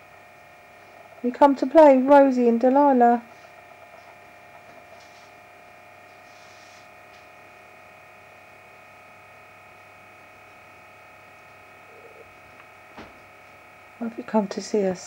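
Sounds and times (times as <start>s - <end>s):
electrical hum and whine: 0.0s - 15.0s
soft rustles: 3.3s - 5.4s, 6.0s - 7.3s.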